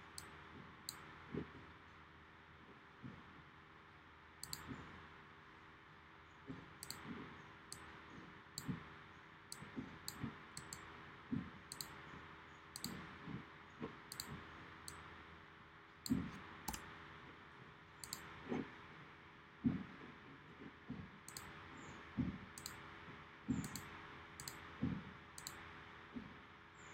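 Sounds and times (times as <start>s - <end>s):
computer mouse clicking: 4.4s - 4.7s, 6.8s - 7.0s, 9.5s - 10.9s, 11.7s - 12.0s, 12.8s - 13.1s, 14.1s - 15.0s, 18.0s - 18.3s, 21.3s - 21.6s, 22.6s - 22.8s, 23.6s - 24.6s, 25.4s - 25.6s.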